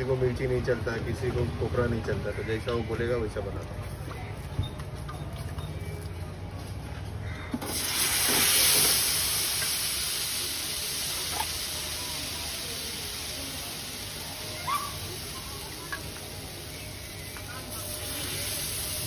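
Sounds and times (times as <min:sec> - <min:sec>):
batter sizzling on hot pan: 0:07.6 - 0:19.0.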